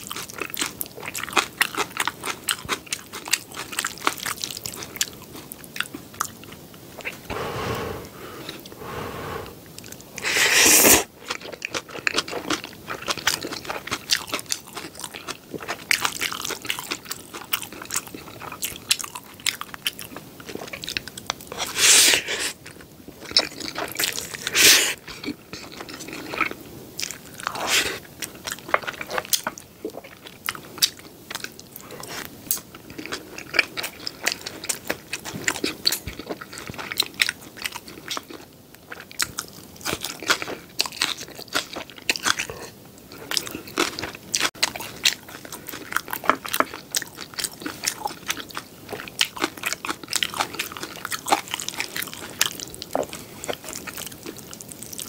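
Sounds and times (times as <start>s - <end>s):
noodle slurps: 7.0s - 9.6s, 10.2s - 11.1s, 24.2s - 25.0s, 27.5s - 28.0s
chewing with wet mouth clicks: 11.2s - 21.7s, 25.0s - 55.0s.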